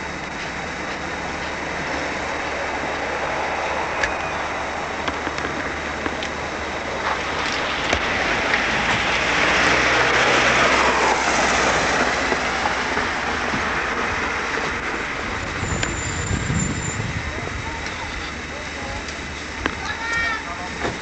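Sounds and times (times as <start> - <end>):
steady traffic noise: 0.0 - 21.0
car passing close by: 7.0 - 14.4.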